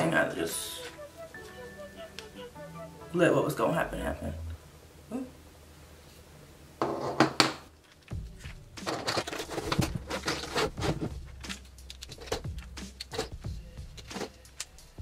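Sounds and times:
perm rods rustling and clicking: 0:07.8 - 0:14.9.

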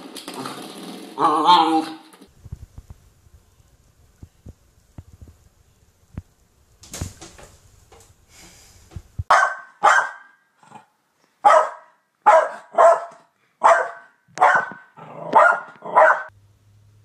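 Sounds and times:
small dog barking: 0:09.3 - 0:10.4, 0:11.4 - 0:16.3.

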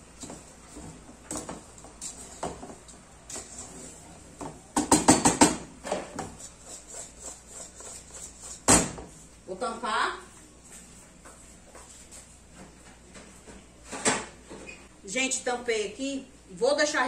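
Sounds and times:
wooden spoon stirring in metal pot: 0:00.0 - 0:04.6, 0:06.1 - 0:09.2.

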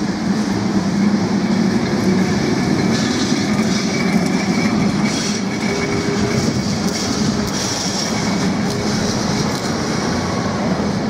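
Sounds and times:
tram rumbling on rails: 0:00.0 - 0:11.0
high wheel squeal: 0:02.9 - 0:09.5.

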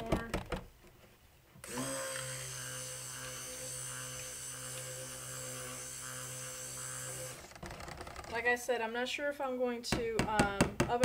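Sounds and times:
stick blender motor humming: 0:01.6 - 0:08.4.

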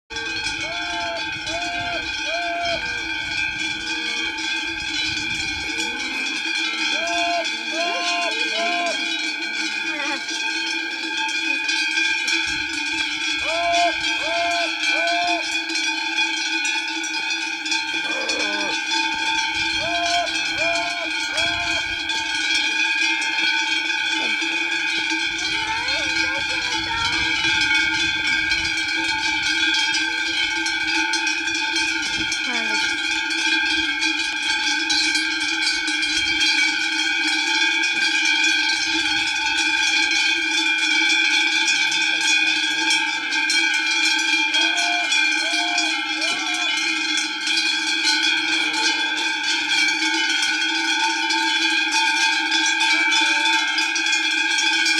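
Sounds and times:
herdsman calling: 0:00.1 - 0:04.5, 0:05.6 - 0:09.2, 0:09.8 - 0:10.3, 0:13.3 - 0:15.6, 0:18.0 - 0:22.4, 0:25.3 - 0:30.2, 0:44.4 - 0:46.9
cowbells jangling: 0:00.1 - 0:54.9.

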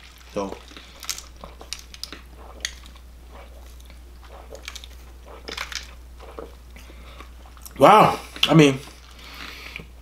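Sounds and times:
mouth clicks and swallows: 0:00.7 - 0:07.8.

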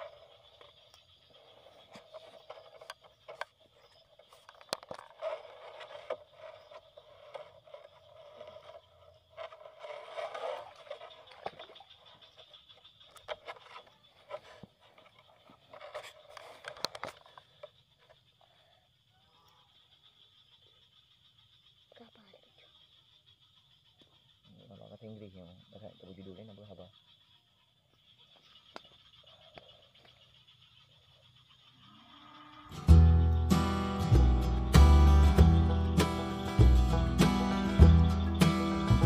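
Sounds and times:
grass rustling and scraping: 0:00.0 - 0:12.2.

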